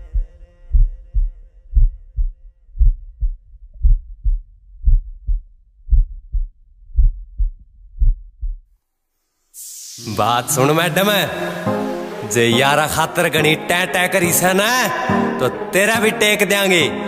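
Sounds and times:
heartbeat thumps: 0.0 - 8.7
song music: 9.9 - 17.0.

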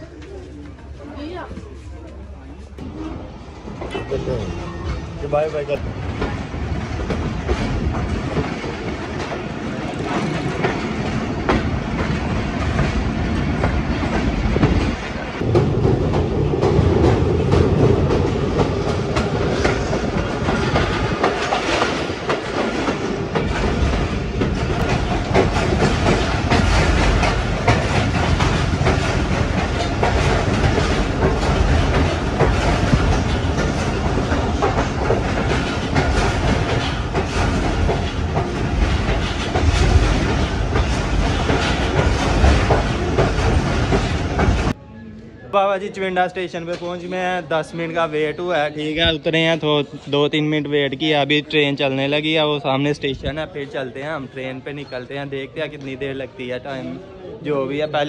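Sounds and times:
train rumble: 0.0 - 44.9
wheels clacking over rails: 2.8 - 44.8.

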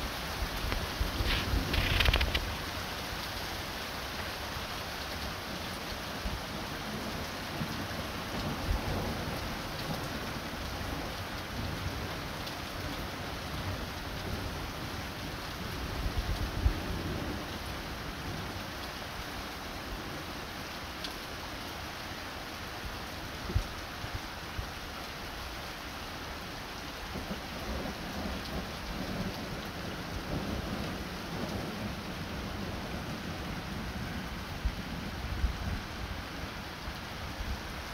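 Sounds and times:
rain hissing: 0.0 - 6.1
hail and rain falling: 0.0 - 20.2, 22.4 - 35.2
hailstones ticking on paving: 0.1 - 3.3.

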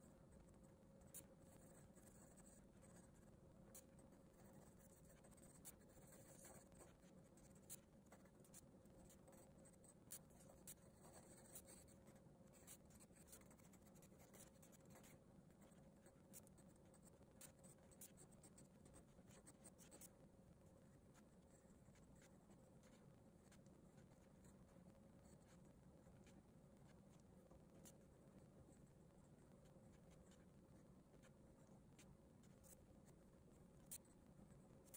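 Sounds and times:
pencil scratching on paper: 0.4 - 20.1, 21.2 - 24.6.

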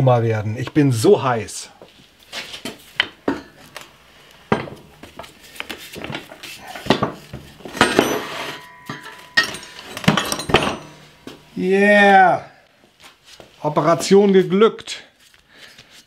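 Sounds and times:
metal clanks and scraping: 4.5 - 11.5.

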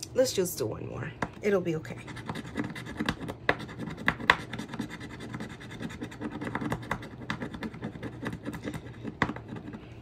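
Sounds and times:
coin scratching paper: 2.0 - 9.9.

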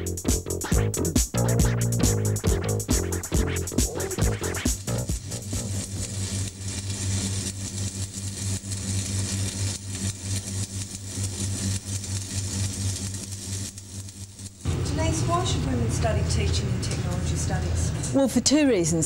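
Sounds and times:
electrical hum of machinery: 3.8 - 19.0.

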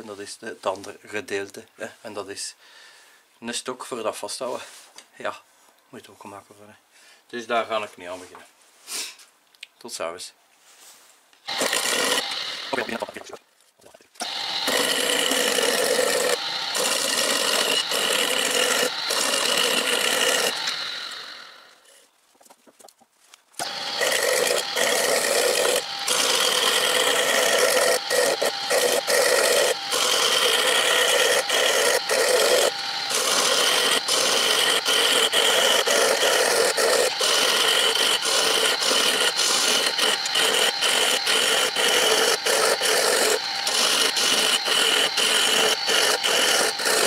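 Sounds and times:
chisel scraping spinning wood: 11.5 - 13.4, 14.2 - 22.1, 23.6 - 47.0
wood lathe running: 11.5 - 13.4, 14.2 - 22.0, 23.6 - 47.0.

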